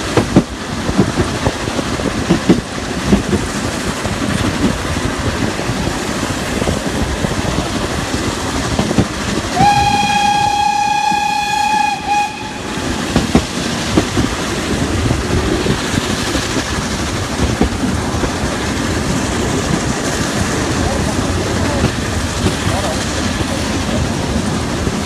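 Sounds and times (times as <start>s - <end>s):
train wheels clicking over rail joints: 0.0s - 25.0s
steam locomotive whistle: 9.6s - 13.0s.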